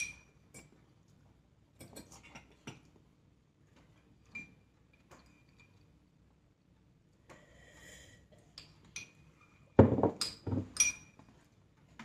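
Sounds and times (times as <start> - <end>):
spoons clinking on ceramic bowls: 0.0 - 0.8, 8.6 - 11.2.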